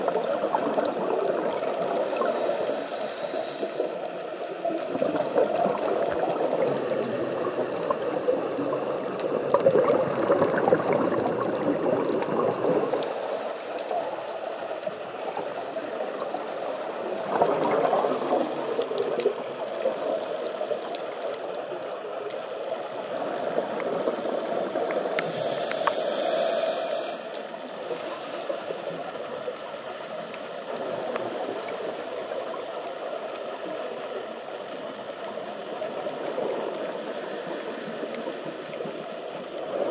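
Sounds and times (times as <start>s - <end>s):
steady underwater hiss: 0.0s - 39.9s
regulator inhale hisses: 1.9s - 4.6s, 6.4s - 9.0s, 12.7s - 14.3s, 17.8s - 19.2s, 19.8s - 21.4s, 24.5s - 29.5s, 30.6s - 32.5s, 36.7s - 39.0s
exhaled bubbles rushing: 9.2s - 13.0s, 17.1s - 18.4s.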